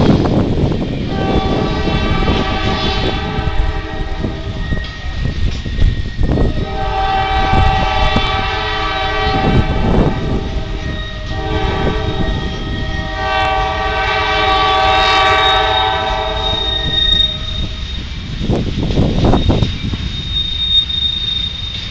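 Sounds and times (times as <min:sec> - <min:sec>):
train wheels rumbling and clattering: 0:00.0 - 0:21.9
high wheel squeal: 0:00.8 - 0:21.9
locomotive air horn blasts: 0:01.1 - 0:04.8, 0:06.4 - 0:17.8.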